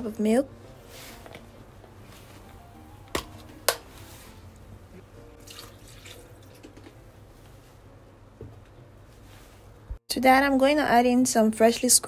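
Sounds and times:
milk pouring and splashing: 5.4s - 7.0s.

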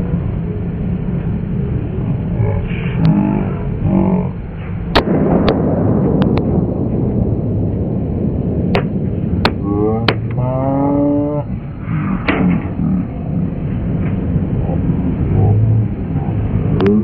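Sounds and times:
sharp claps or bangs: 8.7s - 10.4s.

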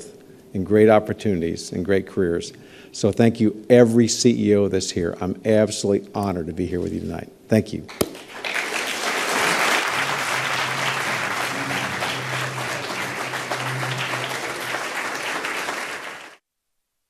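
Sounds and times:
audience applauding: 8.1s - 16.4s.

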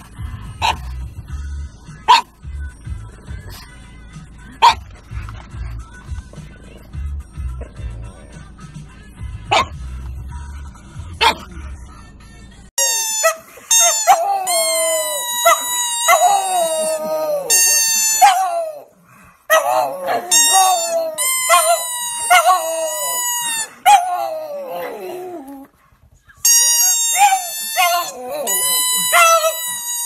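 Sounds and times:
dog howling: 12.8s - 25.7s, 26.5s - 30.0s.

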